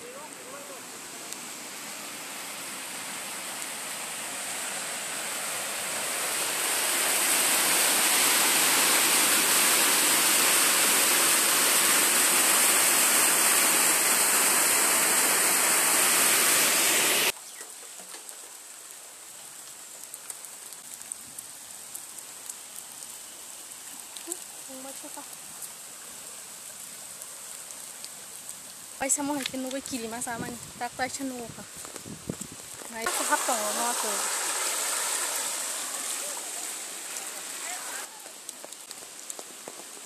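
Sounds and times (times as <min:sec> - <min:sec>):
floodwater rushing: 0:00.0 - 0:17.4, 0:32.7 - 0:40.0.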